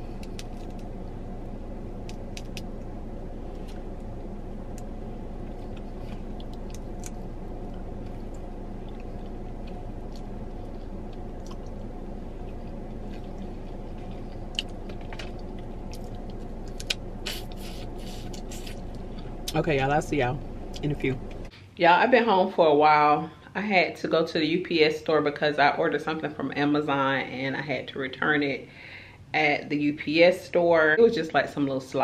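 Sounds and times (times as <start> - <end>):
car cabin hum: 0.0 - 21.5
peanut shells cracking: 0.1 - 0.9, 2.0 - 2.8
chewing: 4.7 - 19.6.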